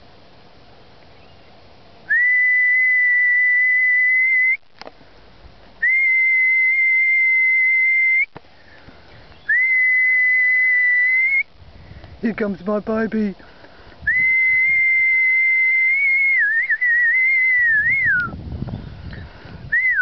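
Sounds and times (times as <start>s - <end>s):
whistle blasts: 2.1s - 4.6s, 5.8s - 8.4s, 9.5s - 11.5s, 14.1s - 18.4s, 19.7s - 20.0s.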